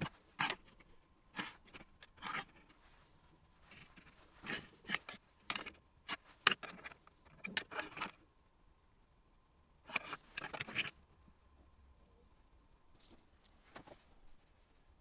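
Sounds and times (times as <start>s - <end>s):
metal tools clicking and scraping on wood: 0.0s - 2.8s, 3.7s - 8.2s, 9.9s - 10.9s.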